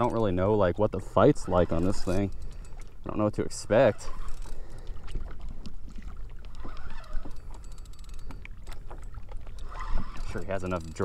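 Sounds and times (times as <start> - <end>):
fishing reel clicking: 1.1 - 5.0, 6.4 - 11.0.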